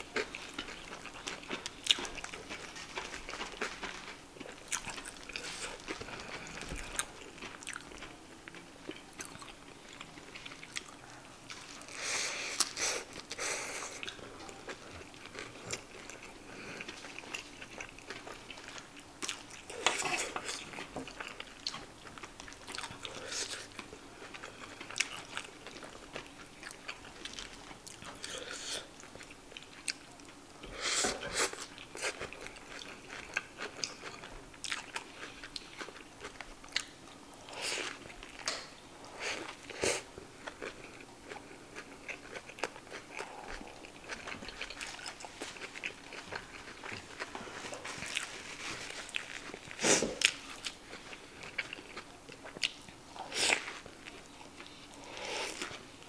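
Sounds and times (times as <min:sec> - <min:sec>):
biting and chewing food: 0:00.1 - 0:12.0, 0:39.4 - 0:56.0.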